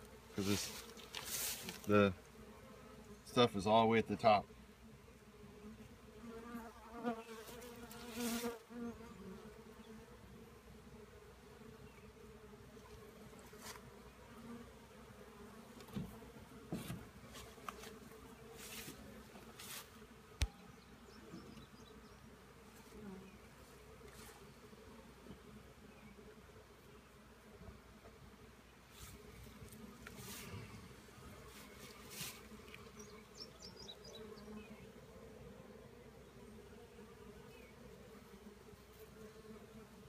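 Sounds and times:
bees humming: 0:28.7 - 0:40.0.

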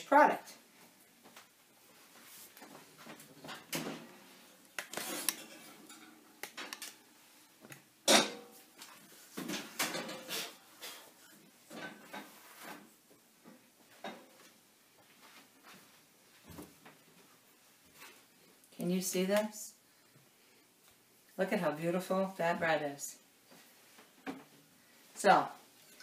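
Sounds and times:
kitchenware clattering: 0:05.0 - 0:06.8, 0:08.0 - 0:08.6, 0:09.4 - 0:12.4.

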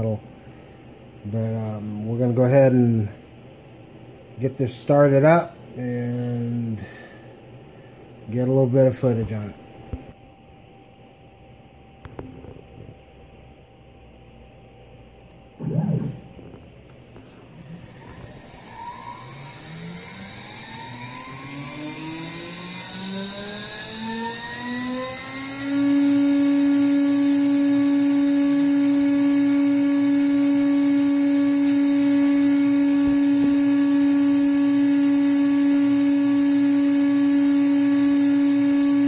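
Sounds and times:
router spindle motor whine: 0:15.6 - 0:39.0.

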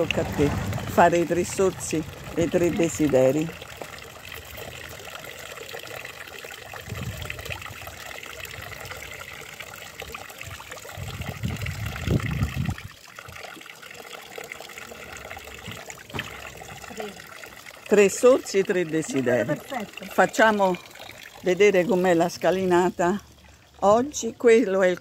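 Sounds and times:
low rumbles: 0:00.0 - 0:03.8
water trickling into stone basin: 0:00.0 - 0:25.0.

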